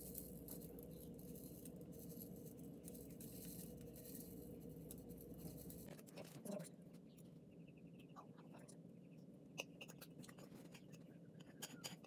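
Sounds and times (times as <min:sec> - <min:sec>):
sprinkles pattering on cake: 0:00.0 - 0:06.0
low room hum: 0:00.0 - 0:12.0.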